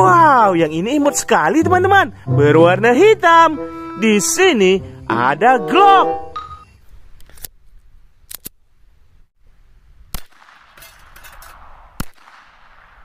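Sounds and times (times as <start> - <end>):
pistol shots: 10.1 - 13.0.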